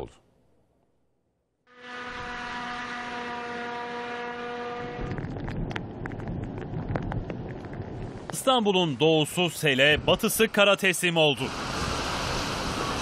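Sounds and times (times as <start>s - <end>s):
wind-like rush: 4.9s - 13.0s
vehicle driving through floodwater: 11.3s - 13.0s.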